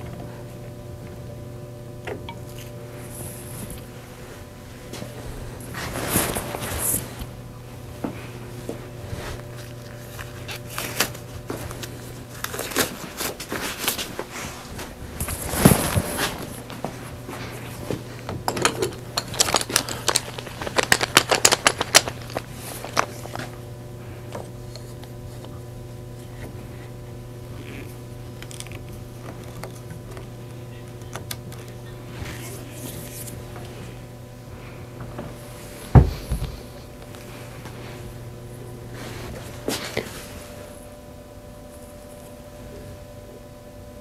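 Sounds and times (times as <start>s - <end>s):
steady low hum: 0.0s - 44.0s
heavy thump: 35.9s - 36.6s.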